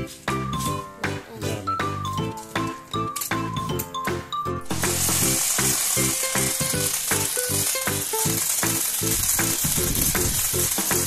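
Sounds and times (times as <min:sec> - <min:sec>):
upbeat children's music: 0:00.0 - 0:11.0
toy car motors hissing: 0:04.7 - 0:11.0.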